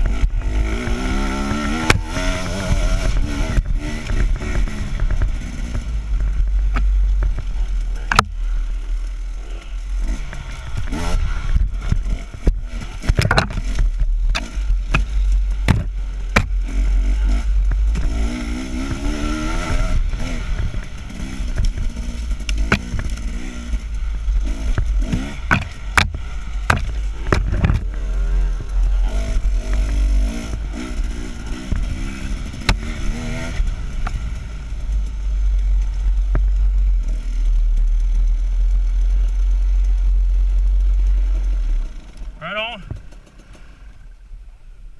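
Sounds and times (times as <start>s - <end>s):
dirt bike engine revving: 0.0s - 43.9s
knocks and clatter from bumps: 11.8s - 16.6s, 24.6s - 28.0s.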